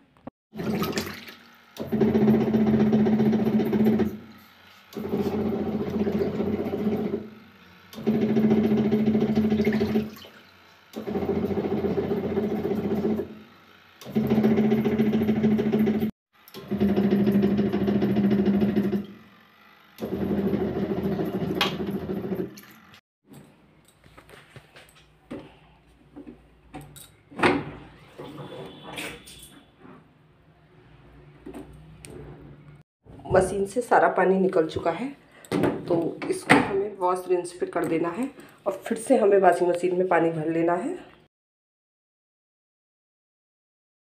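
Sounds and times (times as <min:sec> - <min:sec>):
washing machine motor humming: 0:00.6 - 0:22.8.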